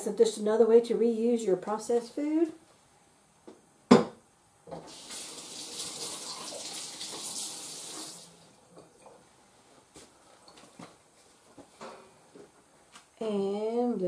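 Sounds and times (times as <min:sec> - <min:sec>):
water splashing into sink: 0:04.8 - 0:08.4.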